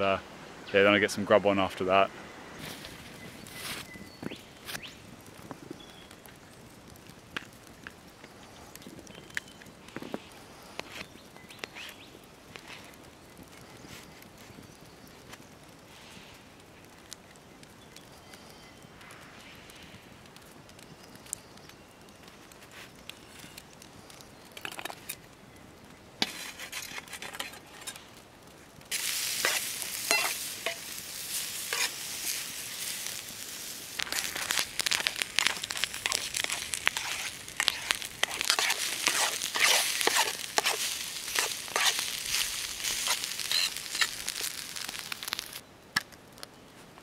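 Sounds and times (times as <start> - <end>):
fork scraping pan: 26.2 - 28.0, 29.4 - 30.9, 31.7 - 32.4, 35.4 - 44.2
food sizzling in frying pan: 28.9 - 45.6.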